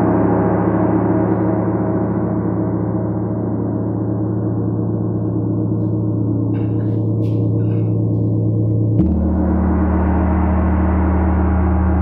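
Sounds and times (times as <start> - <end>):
gong ringing: 0.0 - 12.0
sharp knock on gong: 9.0 - 12.0.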